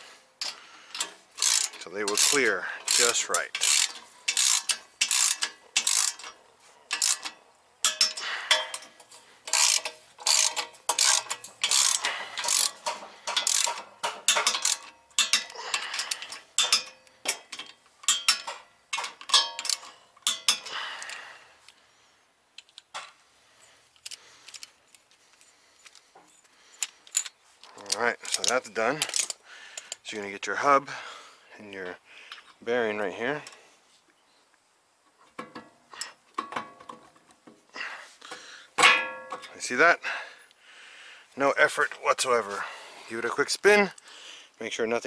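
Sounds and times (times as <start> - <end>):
hand ratchet clicking: 0.4 - 21.8, 26.8 - 30.0.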